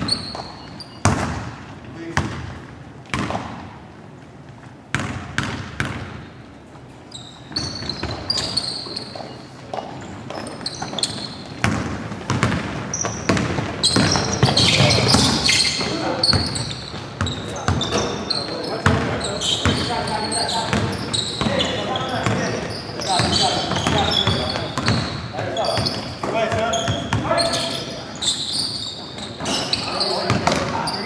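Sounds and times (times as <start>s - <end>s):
basketball bouncing on floor: 0.0s - 3.7s, 4.9s - 6.2s, 9.7s - 18.1s, 18.8s - 20.0s, 20.6s - 21.6s, 23.1s - 27.3s
sneakers squeaking on court: 0.0s - 3.8s, 4.4s - 31.0s
players' voices: 7.7s - 31.0s.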